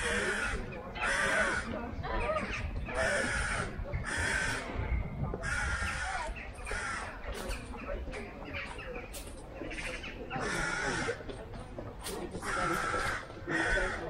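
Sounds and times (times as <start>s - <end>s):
crows cawing: 0.0s - 1.8s, 3.0s - 4.7s, 5.4s - 7.2s, 10.4s - 11.2s, 12.4s - 14.0s.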